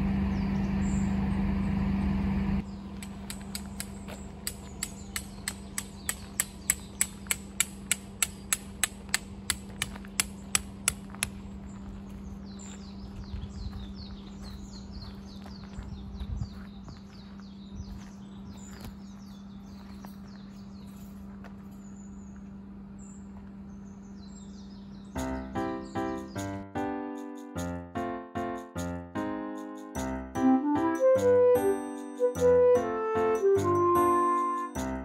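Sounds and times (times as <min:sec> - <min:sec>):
birds chirping: 0:00.0 - 0:26.6.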